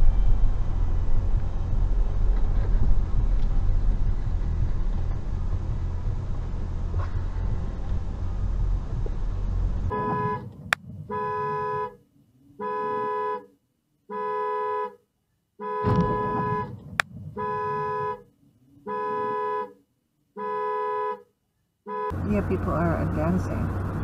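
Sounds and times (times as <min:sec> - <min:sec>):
car horn honking: 0:09.9 - 0:12.0, 0:12.6 - 0:15.0, 0:15.6 - 0:19.8, 0:20.4 - 0:21.3, 0:21.9 - 0:22.4.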